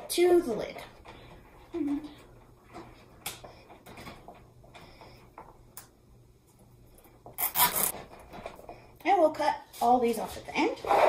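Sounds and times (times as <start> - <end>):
zip ties clicking: 7.4 - 7.9.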